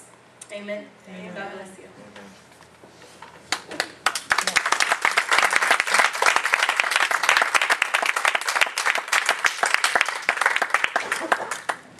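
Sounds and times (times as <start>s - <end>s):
crowd applauding: 3.5s - 11.9s.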